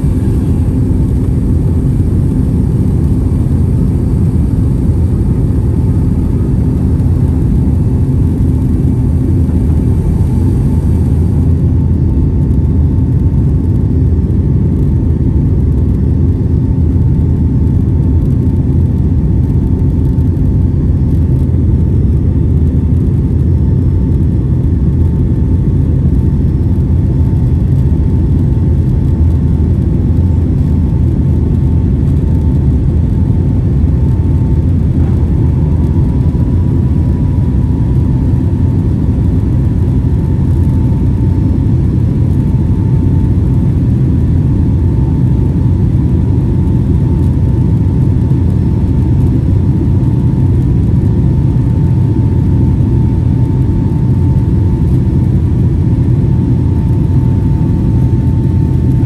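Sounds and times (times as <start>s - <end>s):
jet cabin engine rumble: 0.0s - 59.0s.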